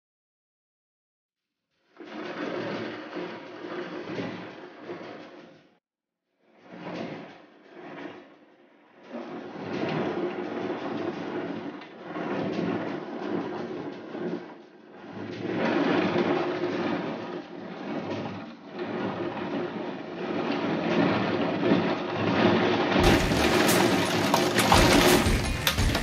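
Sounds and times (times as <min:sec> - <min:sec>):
heavy rain downpour: 0:18.9 - 0:26.0.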